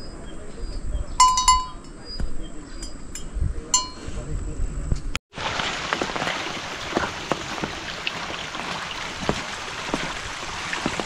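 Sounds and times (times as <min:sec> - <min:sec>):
steady rain falling: 0:05.3 - 0:11.0.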